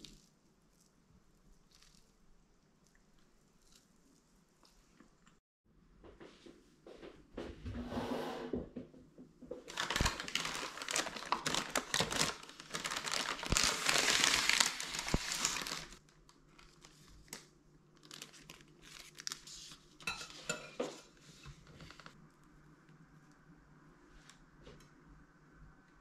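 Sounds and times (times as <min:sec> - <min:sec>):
paper and plastic crinkling: 0:09.6 - 0:22.2.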